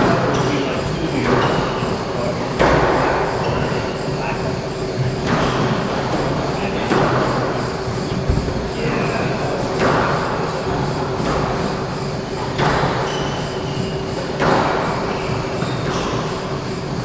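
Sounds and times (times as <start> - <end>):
steady hum: 0.0 - 17.0
squash ball hits echoing: 5.1 - 11.7, 12.4 - 13.2, 14.4 - 16.3
sneakers squeaking on wooden floor: 12.7 - 14.0, 15.1 - 16.2.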